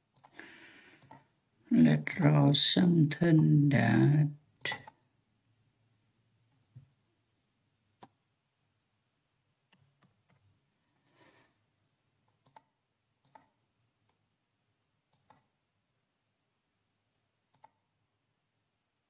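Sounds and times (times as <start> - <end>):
computer mouse and keyboard clicks: 0.1 - 0.4, 1.0 - 1.3, 4.6 - 5.0, 9.7 - 10.5, 12.2 - 14.2, 15.1 - 15.5, 17.5 - 17.9.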